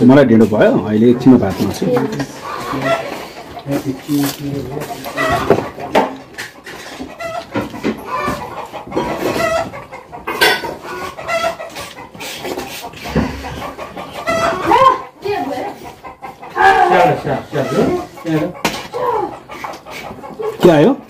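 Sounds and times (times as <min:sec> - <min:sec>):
chickens clucking: 0:00.0 - 0:21.0
metal dishes and utensils clinking: 0:00.5 - 0:08.4, 0:10.2 - 0:10.8.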